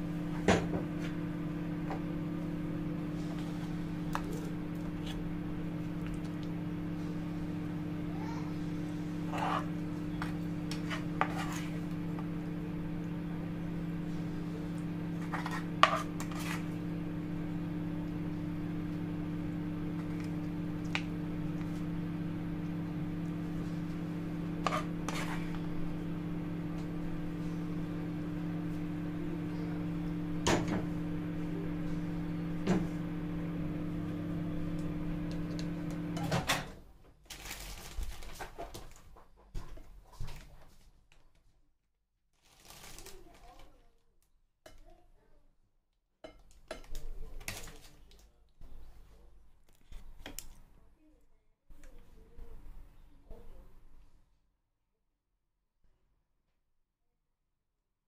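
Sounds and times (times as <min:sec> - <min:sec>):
steady low hum: 0:00.0 - 0:36.2
spatula scraping a skillet: 0:08.6 - 0:12.0, 0:15.2 - 0:16.8, 0:23.6 - 0:25.8.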